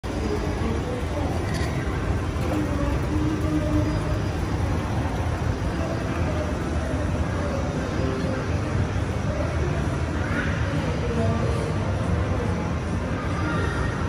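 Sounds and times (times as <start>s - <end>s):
escalator mechanical hum: 0.0s - 14.0s
faint voices: 0.0s - 14.0s.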